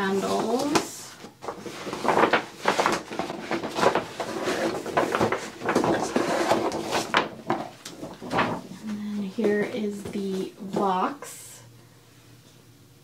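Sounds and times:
paper bag rustling and crinkling: 0.0s - 11.0s
cardboard box scraping out of bag: 1.6s - 7.2s.

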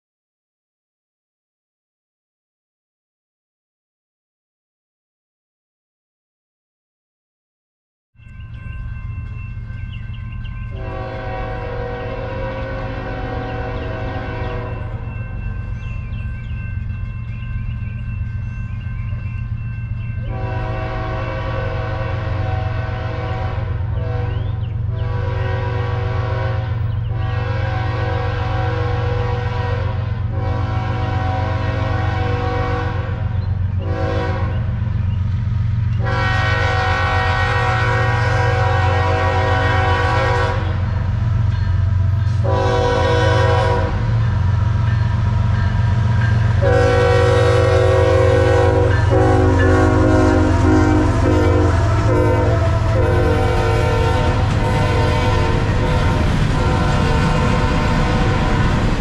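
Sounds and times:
locomotive air horn blast: 10.7s - 15.0s, 20.2s - 34.7s, 36.0s - 40.9s, 42.4s - 44.2s, 46.6s - 58.8s.

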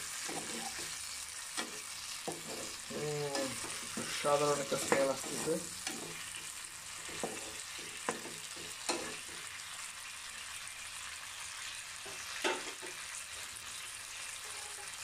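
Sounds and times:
food sizzling in a pan: 0.0s - 15.0s
spatula knocking against pan: 7.1s - 9.4s.

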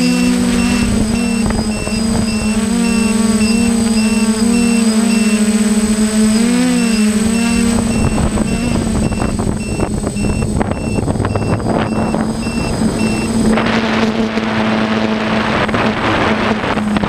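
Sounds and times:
short high electronic beep: 0.0s - 5.5s, 6.5s - 13.3s
drone motors whining: 0.0s - 17.0s
wind buffeting: 0.0s - 17.0s.

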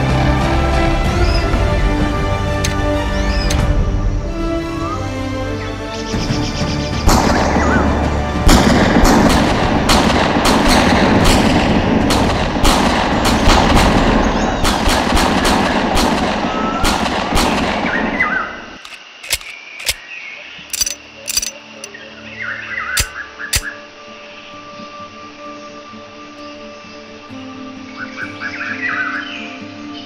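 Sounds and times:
music: 0.0s - 30.0s
gunfire and blasts: 7.1s - 20.0s
scattered clicks: 18.8s - 20.0s, 20.7s - 21.9s, 23.0s - 23.7s.

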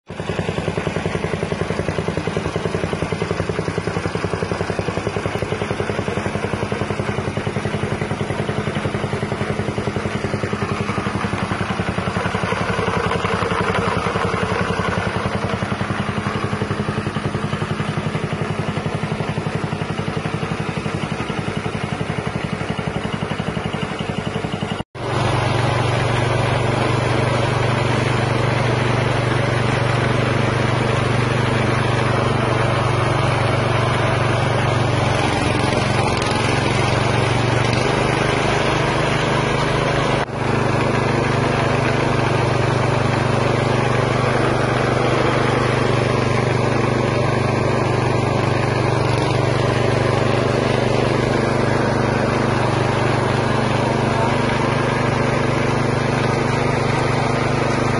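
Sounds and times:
small engine running: 0.1s - 57.9s
meat grinder grinding: 25.0s - 57.9s.

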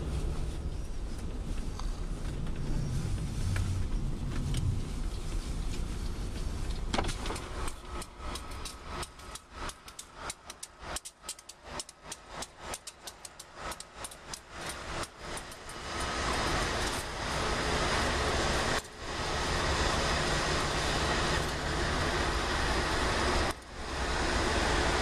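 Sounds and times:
low engine rumble: 0.0s - 25.0s
rapid sharp clicks and ticks: 7.3s - 17.1s.

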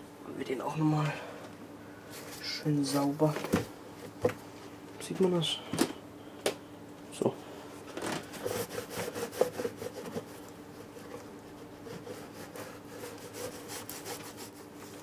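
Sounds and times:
scrubbing and rubbing strokes: 8.4s - 15.0s.

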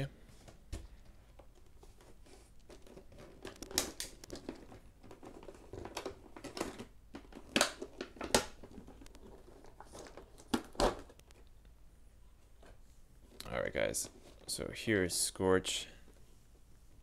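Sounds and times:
plastic packaging crackling: 1.5s - 11.5s.

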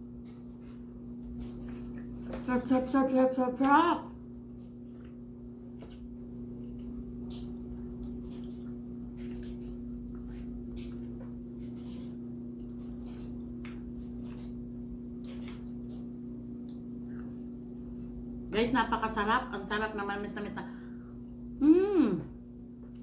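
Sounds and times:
wet chewing and lip-smacking: 0.2s - 2.4s, 4.5s - 18.1s.

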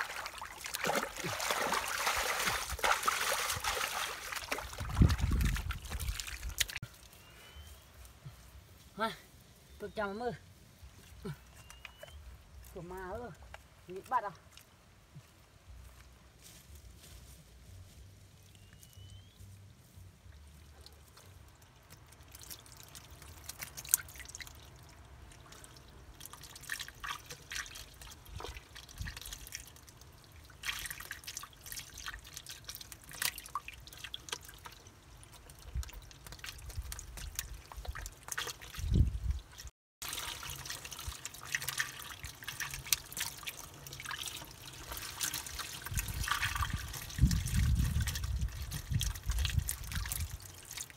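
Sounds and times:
wet splashes and drips: 0.0s - 7.2s, 20.3s - 50.9s.

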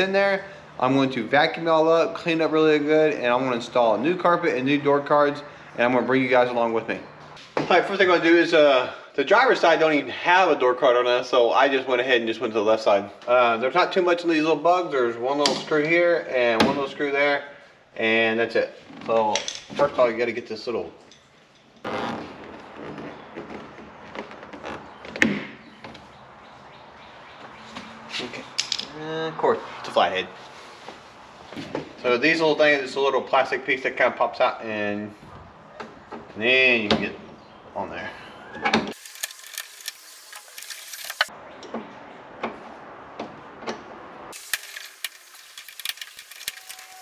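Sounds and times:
screwdriver clicking and scraping: 39.0s - 41.3s.

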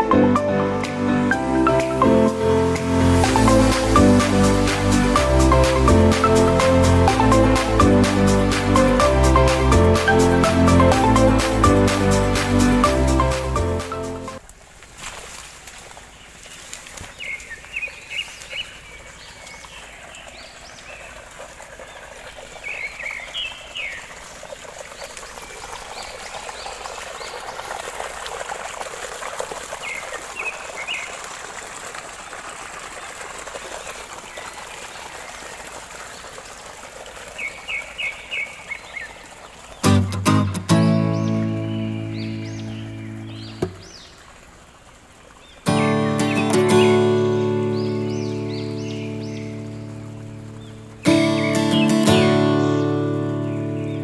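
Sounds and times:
water gushing from a pipe: 1.8s - 54.0s
small birds chirping: 16.0s - 27.5s, 37.3s - 40.0s, 40.7s - 44.4s, 45.3s - 54.0s.

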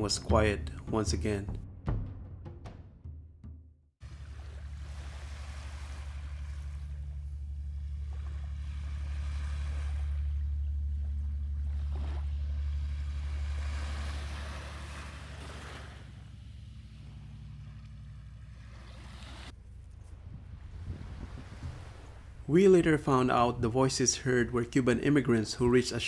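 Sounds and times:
small waves on sandy beach: 4.0s - 19.5s, 20.5s - 22.5s
steady low hum: 4.0s - 26.0s.

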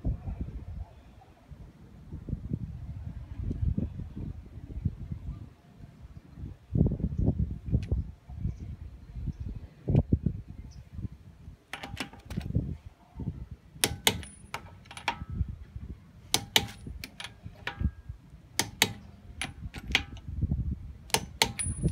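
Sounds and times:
wrench clicking on lug nuts: 13.8s - 15.2s, 16.3s - 17.9s, 18.6s - 20.2s, 21.1s - 21.9s.

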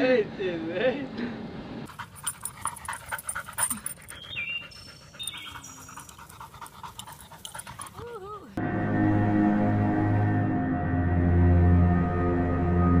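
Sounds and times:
dog panting quickly: 1.9s - 8.3s
dog chirps: 2.2s - 8.4s.

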